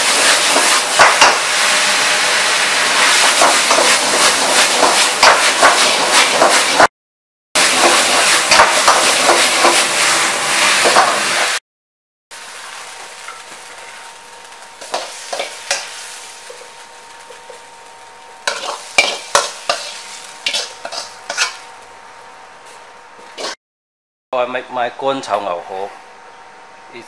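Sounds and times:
noodles sizzling in wok: 0.0 - 6.9, 7.6 - 11.6, 12.3 - 23.6
ladle scraping and clinking on wok: 18.5 - 21.7, 23.3 - 23.6.

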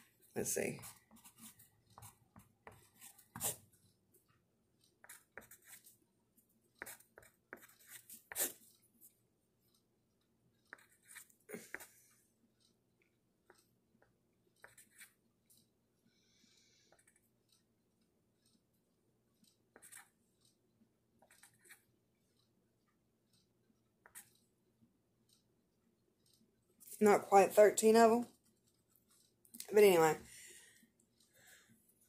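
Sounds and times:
pencil writing on paper: 0.6 - 3.9, 4.8 - 6.0, 6.7 - 8.8, 10.6 - 12.8, 13.4 - 15.7, 16.9 - 17.7, 19.4 - 20.6, 21.2 - 22.5, 23.3 - 24.4.

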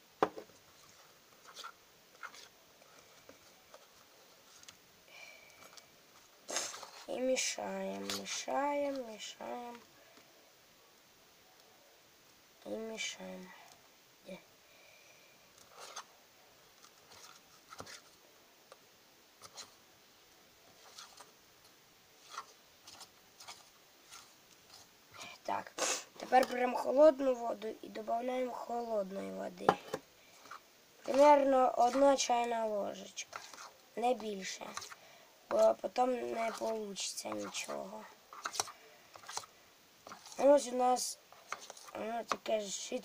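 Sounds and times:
spoon scraping dough in bowl: 33.3 - 33.7, 36.4 - 40.5.

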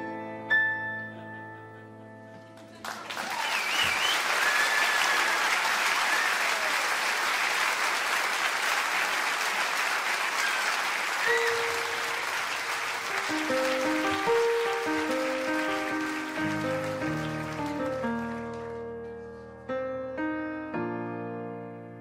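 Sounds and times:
audience applause: 2.6 - 19.2
whistles: 3.2 - 6.8, 10.4 - 12.1
piano chord: 11.2 - 22.0.

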